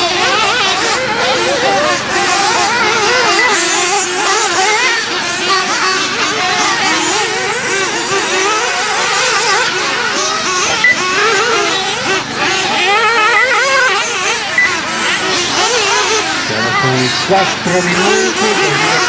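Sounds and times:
rc buggy engines whining: 0.0s - 19.0s.

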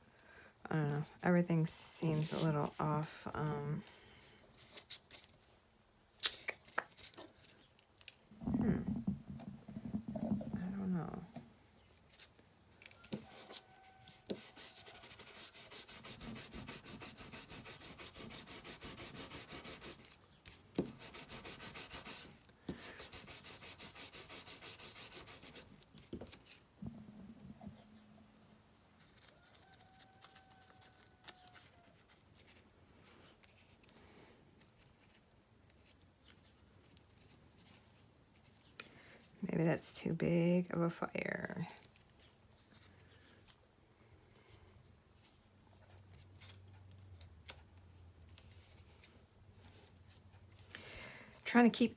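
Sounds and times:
faint paper handling: 2.1s - 5.5s, 6.4s - 8.2s, 29.0s - 34.0s
ink pad scrubbing paper: 13.2s - 20.2s, 20.8s - 25.7s.

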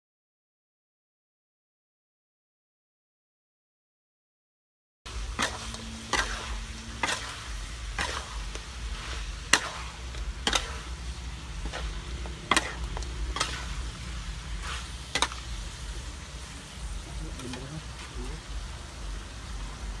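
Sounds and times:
metal spatula scraping a wok: 5.1s - 18.2s
meat sizzling in a wok: 5.1s - 20.0s.

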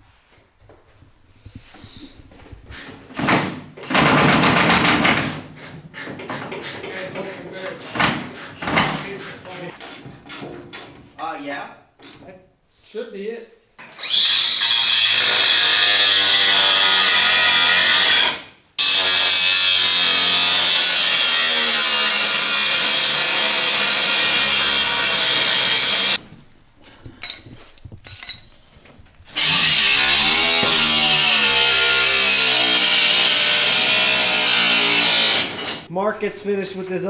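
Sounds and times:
angle grinder cutting metal: 14.0s - 26.2s, 29.3s - 35.9s.

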